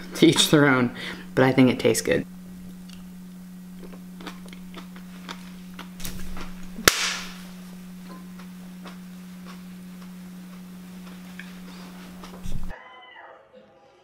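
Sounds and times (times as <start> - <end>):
steady low hum: 0.0 - 12.8
sharp crack with hiss: 6.0 - 7.6.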